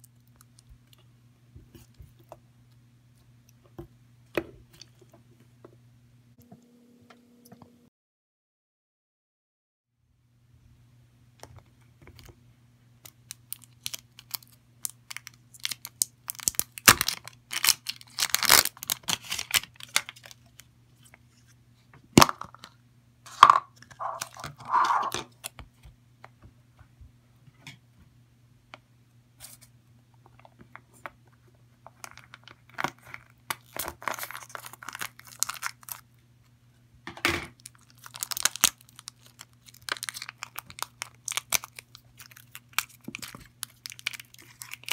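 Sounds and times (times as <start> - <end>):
plastic bag crinkling and tearing: 13.2 - 20.7, 23.8 - 25.5, 32.0 - 36.0, 37.6 - 44.9.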